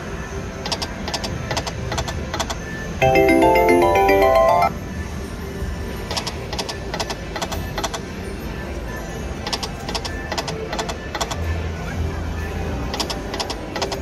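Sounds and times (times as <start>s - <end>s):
slot machine ringing clicks: 3.0s - 4.7s.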